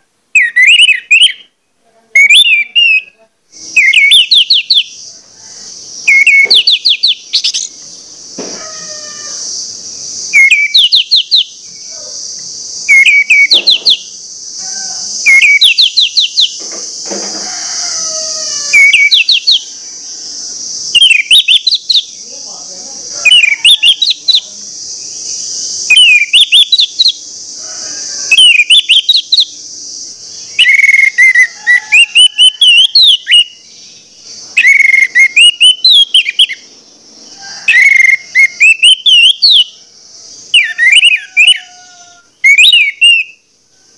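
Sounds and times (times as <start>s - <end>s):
steady high hiss: 0.0s - 43.9s.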